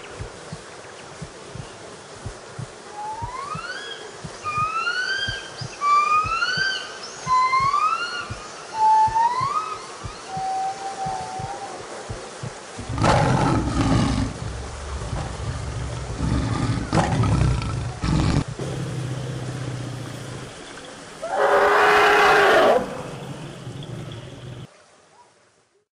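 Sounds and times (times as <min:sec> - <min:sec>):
big cat roaring and growling: 0:12.8 - 0:20.5
elephant trumpet call: 0:21.2 - 0:23.1.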